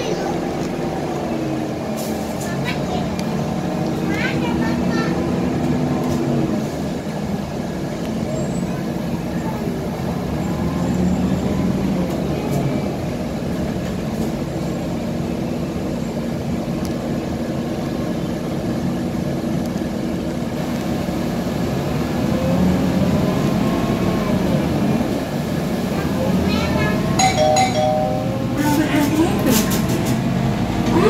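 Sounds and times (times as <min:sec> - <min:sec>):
bus engine rumble: 0:00.0 - 0:31.0
road noise: 0:00.0 - 0:31.0.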